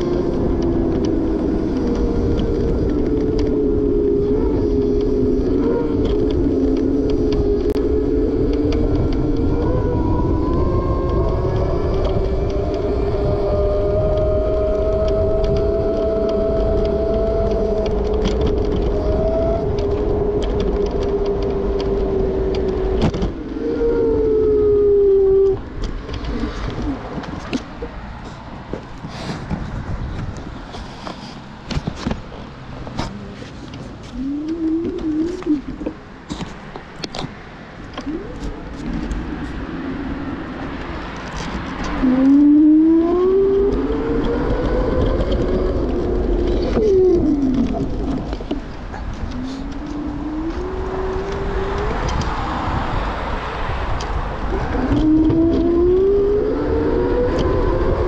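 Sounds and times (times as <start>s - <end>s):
scattered clicks: 0.0s - 24.2s, 40.6s - 53.0s
electric scooter motor whine: 0.0s - 30.7s, 37.0s - 58.0s
low traffic rumble: 0.0s - 58.0s
wheels rolling on pavement: 0.0s - 58.0s
car engine accelerating: 37.1s - 58.0s.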